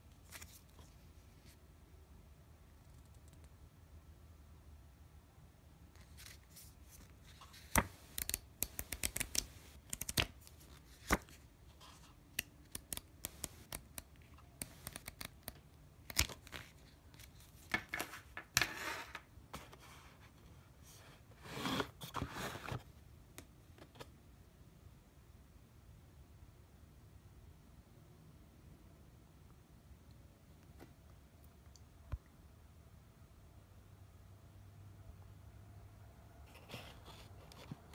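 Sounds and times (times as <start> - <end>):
pages rustling: 0.1 - 1.6, 6.0 - 18.8
paper pages clicking and snapping: 7.5 - 11.4, 12.3 - 17.9.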